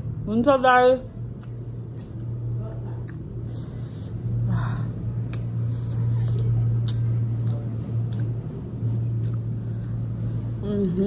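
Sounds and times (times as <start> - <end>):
steady low hum: 0.0 - 11.0
wet mouth clicks chewing: 3.0 - 3.5, 5.2 - 10.0.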